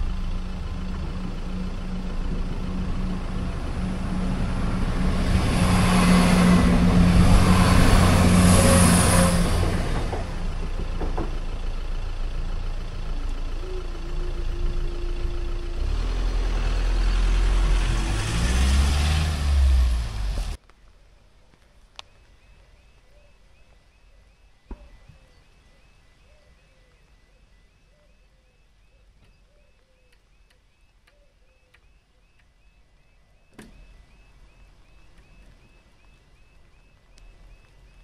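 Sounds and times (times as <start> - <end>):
train engine: 0.0 - 18.6
road traffic driving past: 0.0 - 20.6, 30.2 - 38.0.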